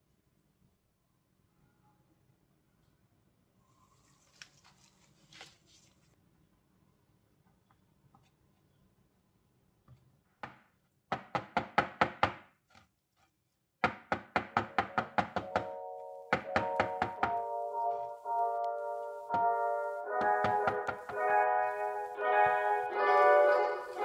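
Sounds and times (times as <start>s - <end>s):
background music with chords: 15.4s - 24.0s.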